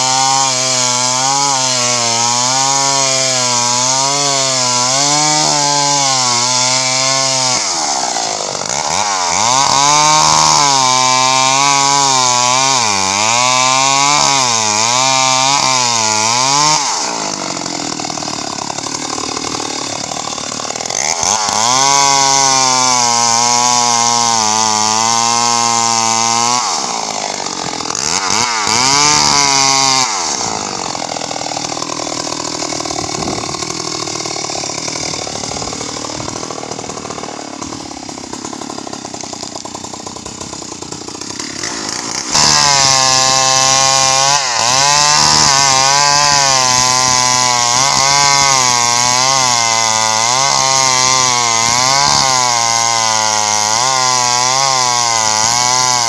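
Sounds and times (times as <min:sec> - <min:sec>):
chainsaw cutting wood: 0:00.0 - 0:56.0.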